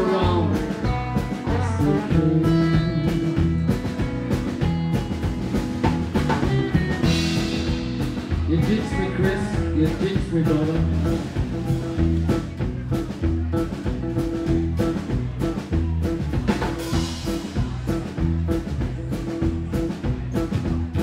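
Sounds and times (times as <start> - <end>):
acoustic guitar: 0.0 - 21.0
drum kit beat: 0.0 - 21.0
electric guitar: 0.0 - 21.0
upright bass: 0.0 - 21.0.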